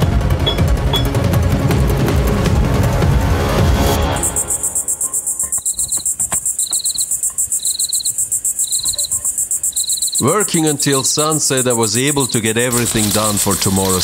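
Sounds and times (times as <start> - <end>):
lower chirp: 0.0 - 1.2, 4.0 - 12.5
crickets trilling: 4.0 - 14.0.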